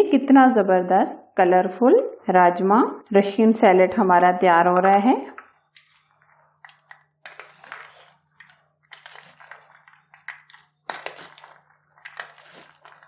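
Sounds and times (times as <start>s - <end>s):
wooden spoons tossing beans: 4.9s - 13.0s.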